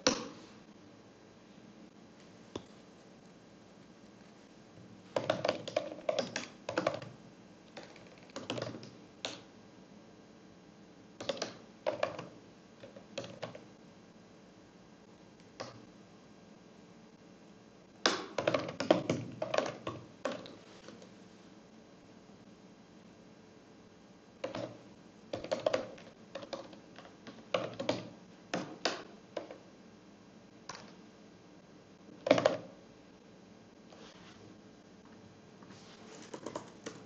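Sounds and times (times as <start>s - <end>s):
computer keyboard typing: 5.1s - 9.4s, 24.4s - 29.5s, 36.1s - 37.0s.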